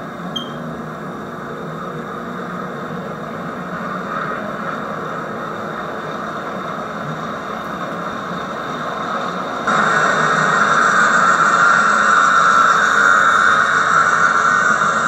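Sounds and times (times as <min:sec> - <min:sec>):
model train running on track: 0:00.8 - 0:15.0.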